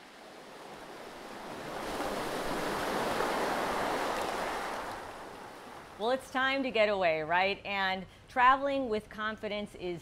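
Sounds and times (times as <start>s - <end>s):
ocean wave washing in: 0.0s - 6.0s.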